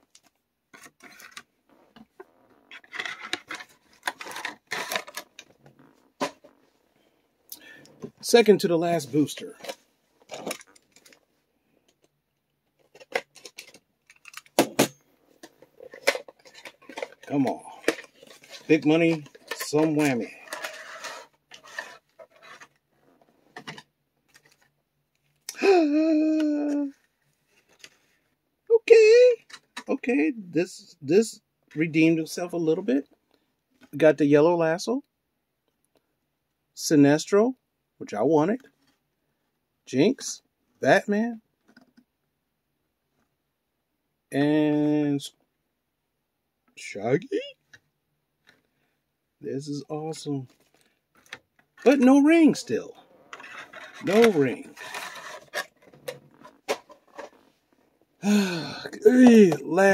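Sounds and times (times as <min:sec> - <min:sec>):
packaging rustling and scraping: 0:00.2 - 0:06.8, 0:09.2 - 0:11.3, 0:15.3 - 0:24.8, 0:50.4 - 0:58.1
man's wordless exclamation: 0:25.5 - 0:27.0, 0:28.7 - 0:32.5, 0:54.0 - 0:54.7, 0:58.2 - 0:59.9.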